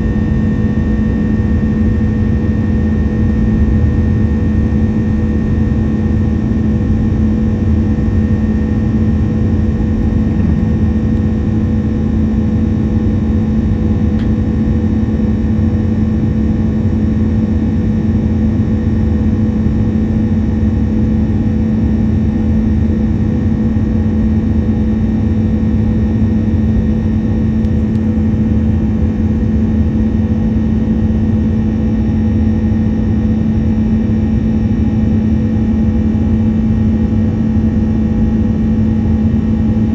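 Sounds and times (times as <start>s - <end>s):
low hum: 0.0s - 39.9s
jet engines roaring: 7.0s - 13.4s.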